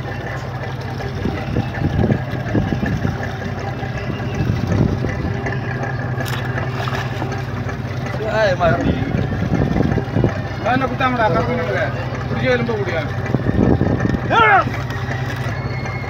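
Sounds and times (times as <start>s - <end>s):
water splashing: 0.0s - 12.4s
boat engine idling: 0.0s - 16.0s.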